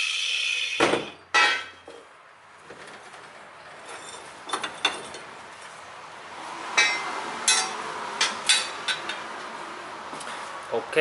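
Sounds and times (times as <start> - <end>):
steel tools clinking on metal: 6.8 - 9.2.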